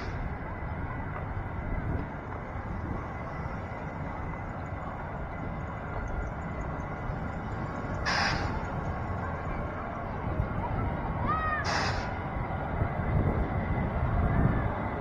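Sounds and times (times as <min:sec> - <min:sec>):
cars driving past: 0:00.0 - 0:15.0
burst of hiss: 0:11.7 - 0:12.1.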